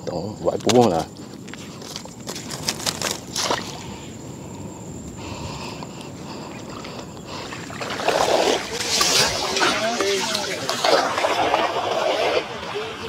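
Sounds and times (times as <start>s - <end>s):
water sloshing: 6.6s - 13.0s
short splashes: 7.4s - 13.0s.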